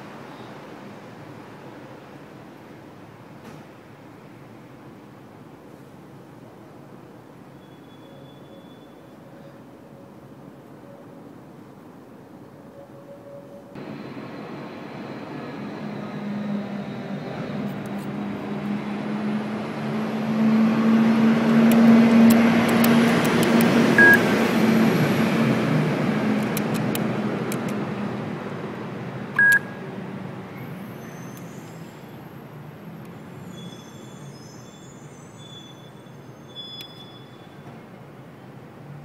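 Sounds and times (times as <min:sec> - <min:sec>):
passing vehicle rumbling: 0:13.8 - 0:30.6
short high keypad beeps: 0:24.0 - 0:24.2, 0:29.4 - 0:29.8.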